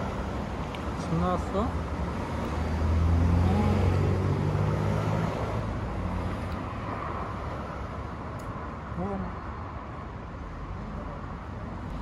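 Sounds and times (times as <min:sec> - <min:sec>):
traffic noise: 0:00.0 - 0:12.0
vehicle engine passing: 0:11.8 - 0:12.0.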